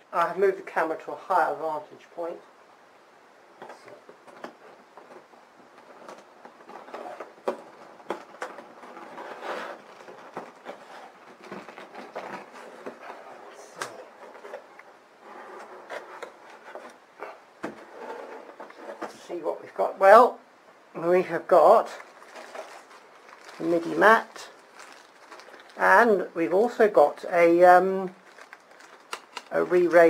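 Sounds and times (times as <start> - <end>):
small knocks and rustles: 3.6 - 17.0
cardboard rubbing and scraping: 5.8 - 17.0, 17.7 - 19.2.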